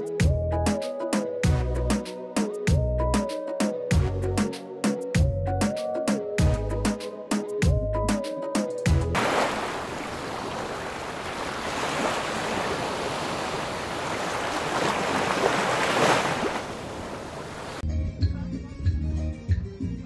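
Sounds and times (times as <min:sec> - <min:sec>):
waves washing onto beach: 0:09.2 - 0:17.8.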